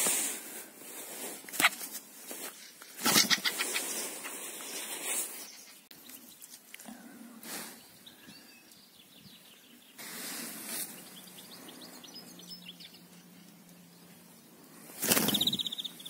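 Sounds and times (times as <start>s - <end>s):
bird wings fluttering: 1.4s - 5.5s, 14.8s - 15.8s
small birds chirping: 1.5s - 16.0s.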